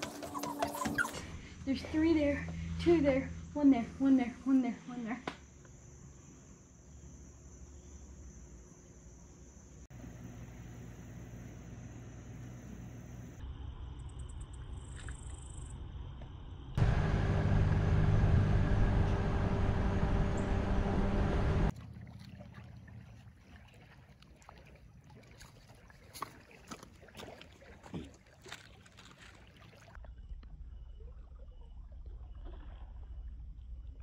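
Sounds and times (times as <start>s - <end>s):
vehicle driving on paved road: 16.2s - 21.8s
water lapping at shore: 21.7s - 33.8s.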